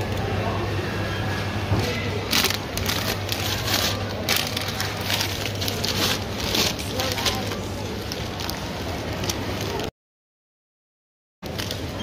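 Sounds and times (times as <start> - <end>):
plastic bag rustling and crinkling: 1.8 - 9.9.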